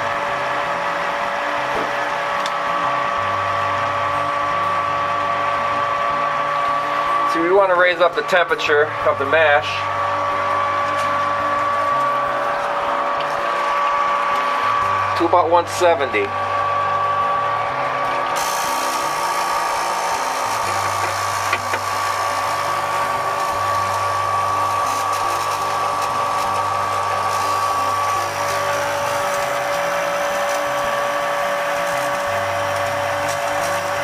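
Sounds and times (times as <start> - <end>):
electric pump whining: 0.0 - 34.0.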